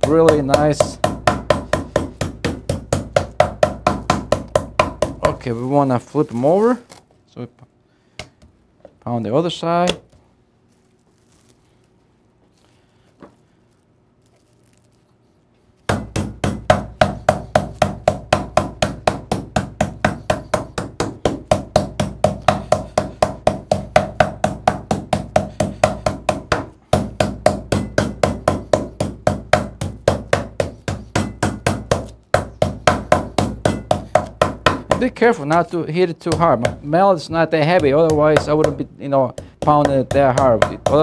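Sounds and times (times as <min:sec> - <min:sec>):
meat mallet pounding on board: 0:00.0 - 0:05.5, 0:15.9 - 0:35.3, 0:36.2 - 0:41.0.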